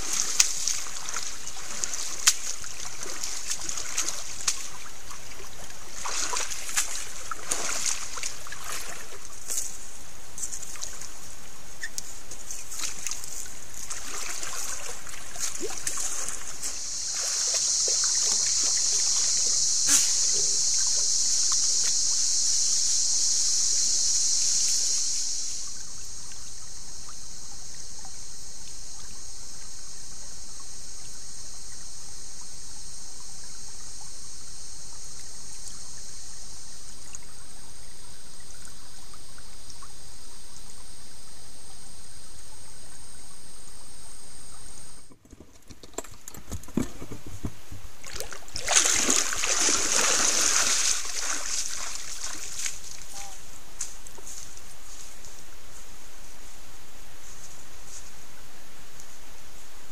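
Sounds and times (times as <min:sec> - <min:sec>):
trickling water: 0:00.0 - 0:19.6, 0:45.5 - 0:53.4
high-pitched insect drone: 0:00.0 - 0:45.1, 0:48.1 - 0:58.2.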